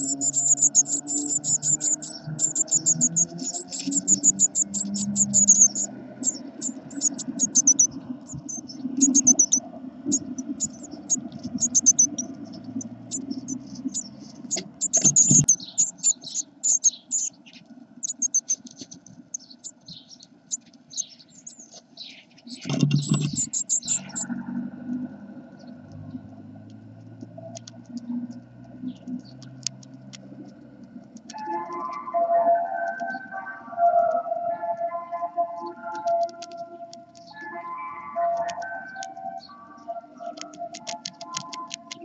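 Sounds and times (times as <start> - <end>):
clicks and scratches on nest: 0.0 - 5.9, 17.2 - 19.8, 21.7 - 24.2
nestlings high-pitched cheeping: 0.0 - 21.8, 22.5 - 24.4.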